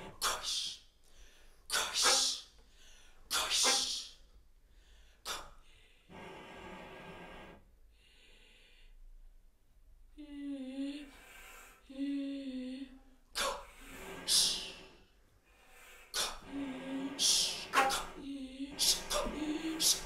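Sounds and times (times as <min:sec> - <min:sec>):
breathy flute air bursts: 0:16.2 - 0:20.0.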